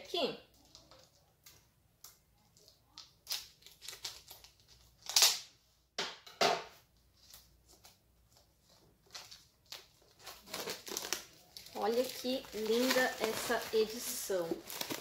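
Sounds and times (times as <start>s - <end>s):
shrink-wrap crinkling: 2.6s - 5.3s, 8.7s - 15.0s.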